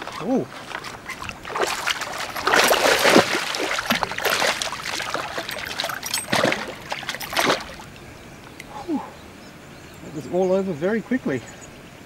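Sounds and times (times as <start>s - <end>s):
fish splashing at water surface: 0.0s - 8.0s.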